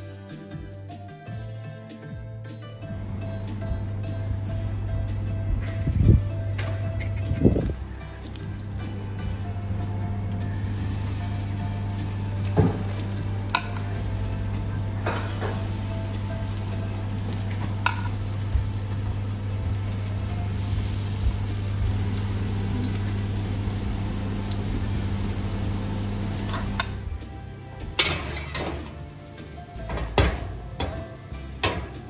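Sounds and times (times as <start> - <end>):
steady low hum: 2.9 - 27.7
batter sizzling in hot oil: 7.1 - 9.0, 10.3 - 27.1.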